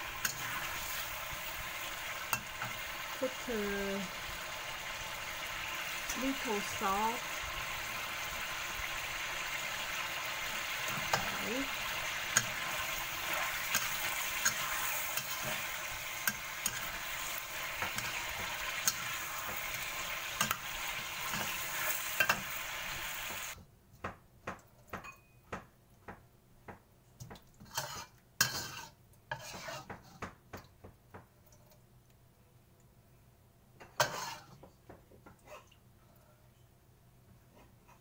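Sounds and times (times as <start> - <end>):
metal spatula scraping a pan: 0.0 - 2.9, 9.6 - 23.5, 27.6 - 30.2, 33.9 - 34.6
meat sizzling in a wok: 0.0 - 23.6, 27.7 - 29.9, 34.0 - 34.5.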